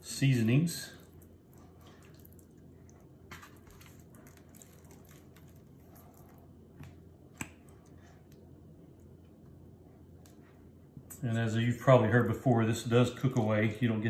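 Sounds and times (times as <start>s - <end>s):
hands squishing on wet meat: 0.2s - 11.2s.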